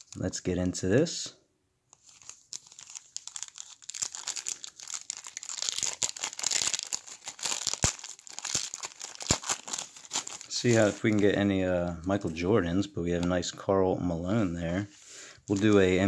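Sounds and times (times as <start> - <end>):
plastic wrapper crinkling and tearing: 0.0 - 0.2, 1.9 - 12.4, 15.5 - 16.0.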